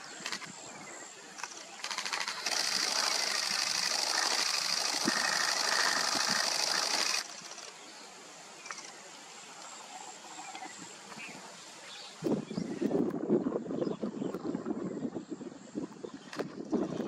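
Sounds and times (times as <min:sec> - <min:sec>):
cicada buzzing: 0:01.8 - 0:07.8.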